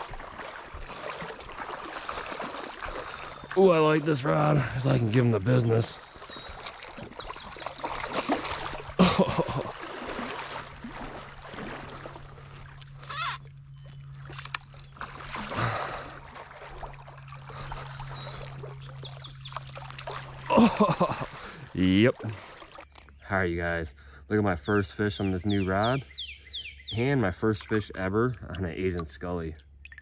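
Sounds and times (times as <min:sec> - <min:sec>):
fish splashing in water: 0:00.0 - 0:22.9.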